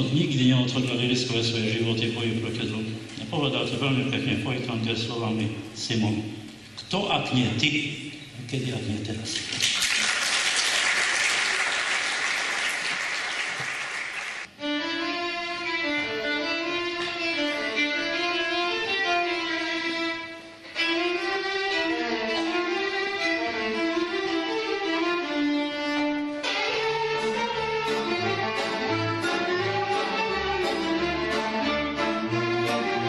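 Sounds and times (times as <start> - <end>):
audience applauding: 9.4 - 14.5
folk band playing: 14.4 - 33.0
violin melody: 14.4 - 33.0.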